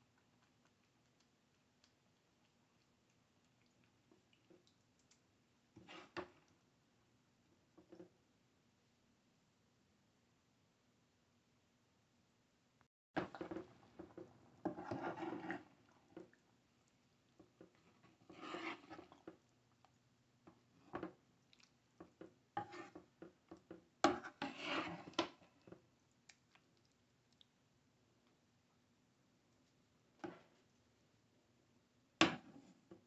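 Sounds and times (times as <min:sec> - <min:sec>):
spoon stirring thick chili: 0:00.0 - 0:06.7, 0:13.2 - 0:27.6.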